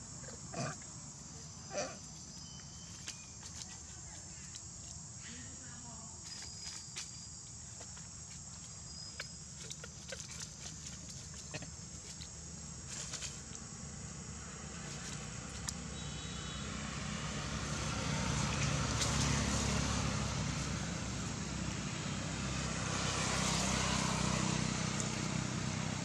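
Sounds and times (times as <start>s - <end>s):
vehicle engine running: 7.8s - 26.0s.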